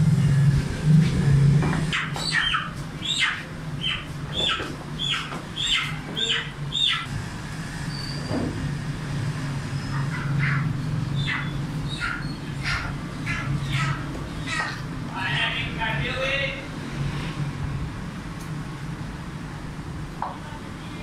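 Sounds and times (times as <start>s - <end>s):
steady low hum: 0.0s - 21.0s
bird squawking: 1.9s - 7.1s, 9.8s - 15.8s.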